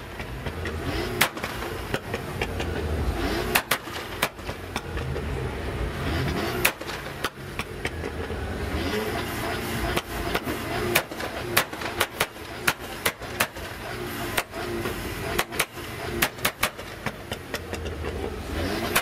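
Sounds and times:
car engine rumbling: 0.0 - 19.0
exhaust pops and crackles: 0.0 - 19.0.

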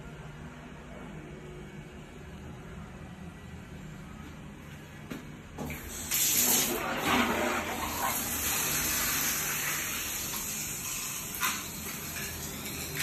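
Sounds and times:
toilet flushing: 5.6 - 13.0.

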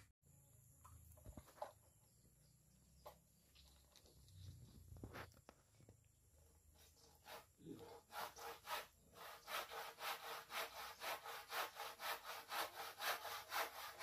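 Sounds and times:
hand saw cutting wood: 6.8 - 14.0.

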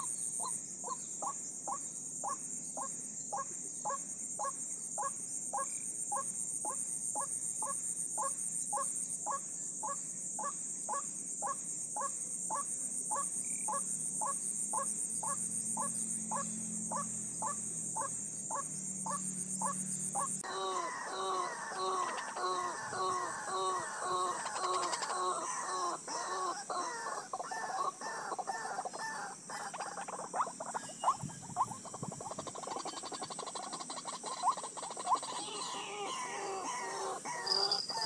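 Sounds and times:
bird calling: 7.6 - 38.0.

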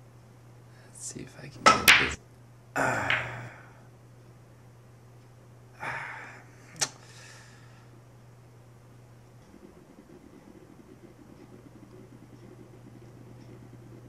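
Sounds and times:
steady low hum: 0.0 - 14.0
pool balls knocking and rolling: 1.6 - 2.2, 3.0 - 3.5.

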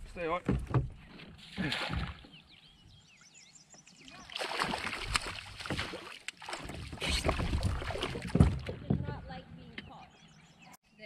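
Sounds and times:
birds chirping: 0.1 - 5.4, 8.8 - 11.0
fish splashing in water: 4.1 - 8.7.

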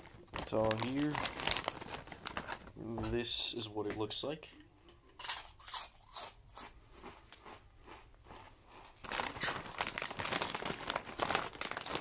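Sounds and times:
chip bag crinkling: 0.0 - 2.8, 5.2 - 12.0
chips crunching while chewed: 5.2 - 12.0.

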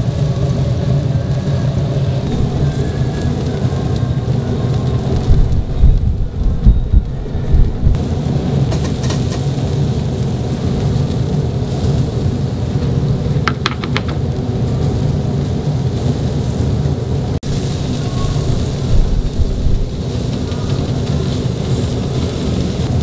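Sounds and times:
low rumble: 0.0 - 8.7, 14.2 - 23.0
skewers sizzling on charcoal grill: 0.0 - 23.0
sharp ticks: 20.0 - 22.2.

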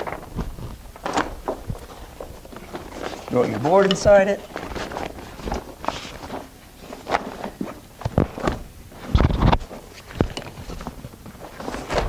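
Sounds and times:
rustling and scraping fabric bag: 0.0 - 12.0.

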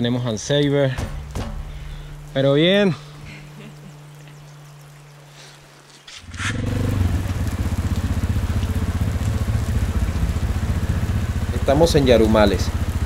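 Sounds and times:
motorcycle engine running: 6.3 - 13.0.

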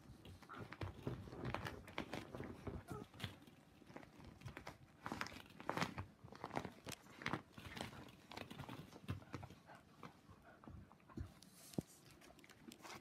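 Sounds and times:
plastic paddling pool crinkling: 0.0 - 10.2.

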